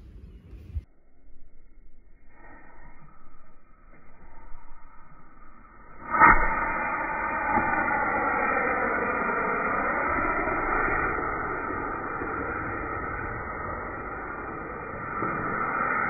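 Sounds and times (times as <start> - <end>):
firework rockets hissing: 6.1 - 16.0.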